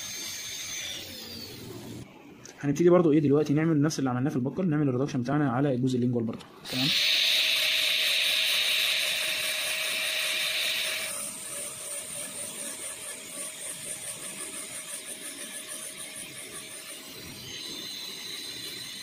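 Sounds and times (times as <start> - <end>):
dental drill grinding: 0.0 - 2.0, 6.7 - 19.0
pulsing drill whine: 0.0 - 2.0, 6.7 - 19.0.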